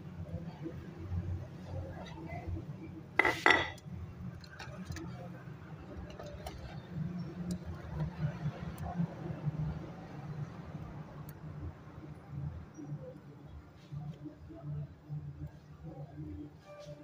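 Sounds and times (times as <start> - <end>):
utensil clinking on metal: 3.2 - 3.8.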